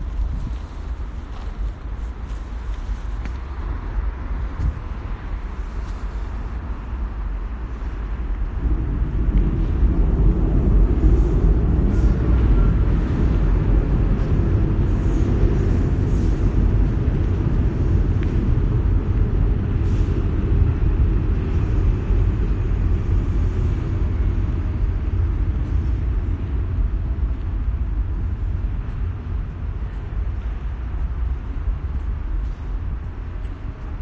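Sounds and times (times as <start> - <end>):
low outdoor background rumble: 0.0 - 34.0.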